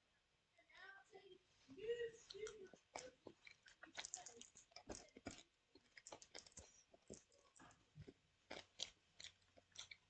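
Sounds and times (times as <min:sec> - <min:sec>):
candy chewing crunches: 0:02.3 - 0:10.0
mouth clicks: 0:02.3 - 0:10.0.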